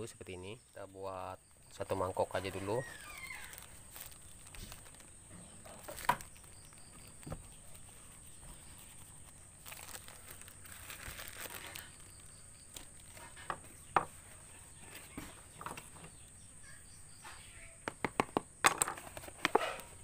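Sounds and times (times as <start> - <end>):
plastic bag crinkling: 1.6 - 13.6.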